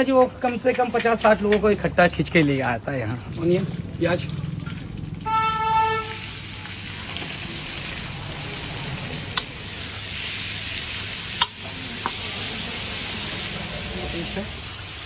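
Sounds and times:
onions sizzling in hot oil: 3.3s - 15.0s.

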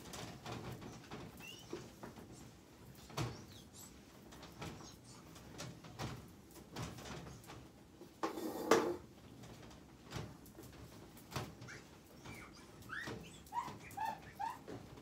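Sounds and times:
clothes rustling: 0.0s - 15.0s
drawer sliding: 8.2s - 9.0s.

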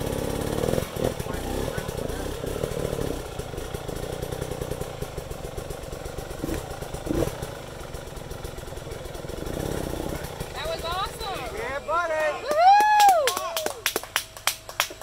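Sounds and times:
dirt bike engine at low revs: 0.0s - 12.4s.

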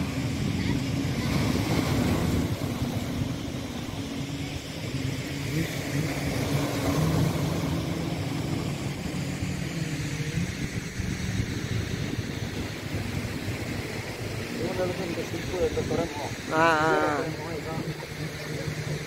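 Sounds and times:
waves splashing against rocks: 0.0s - 10.0s
low engine hum: 0.0s - 19.0s.

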